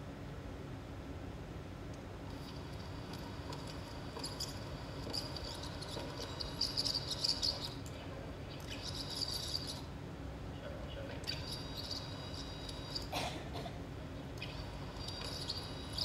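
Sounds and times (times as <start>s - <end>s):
low steady hum: 0.0s - 16.0s
high insect-like chirring: 2.3s - 7.9s, 8.6s - 10.0s, 11.2s - 13.2s, 14.4s - 16.0s.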